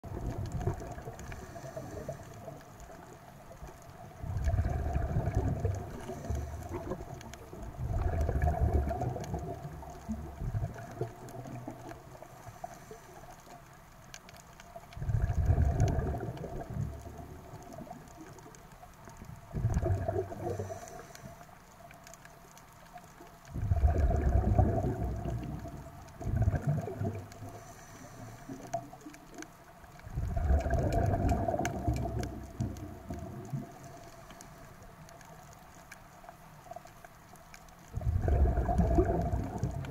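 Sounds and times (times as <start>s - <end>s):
exhaled bubbles gurgling underwater: 0.0s - 39.9s
regulator inhale hiss: 1.2s - 2.6s, 5.9s - 7.1s, 12.2s - 13.6s, 20.4s - 21.6s, 27.4s - 29.1s, 33.8s - 34.9s.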